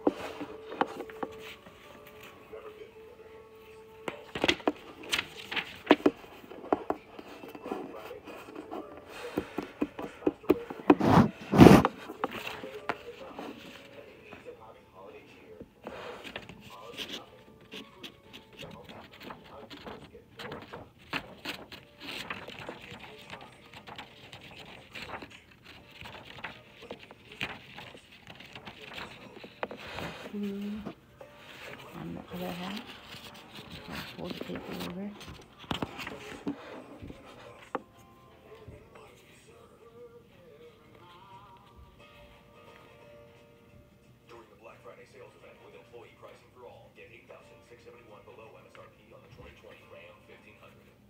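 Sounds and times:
paper rustling: 0:00.0 - 0:14.7, 0:15.3 - 0:39.7.

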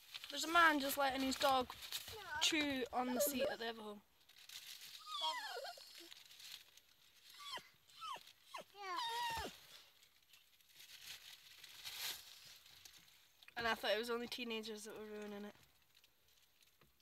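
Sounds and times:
dog whining and yelping: 0:02.3 - 0:03.6, 0:05.0 - 0:06.2, 0:07.3 - 0:09.6.

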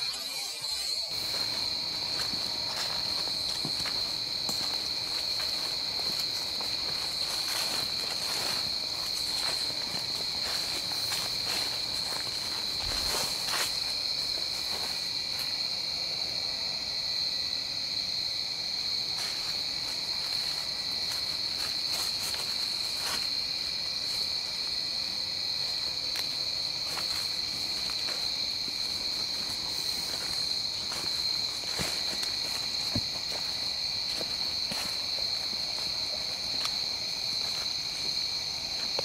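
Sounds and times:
footsteps crunching on leaves: 0:00.0 - 0:15.8, 0:18.9 - 0:39.0
night insects chorus: 0:00.0 - 0:39.0.

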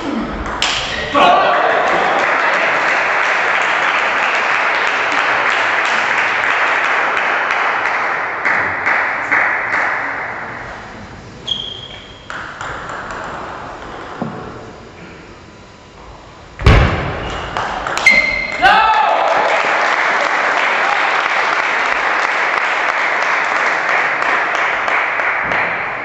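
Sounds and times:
crowd applauding: 0:00.6 - 0:10.5, 0:17.5 - 0:26.0.

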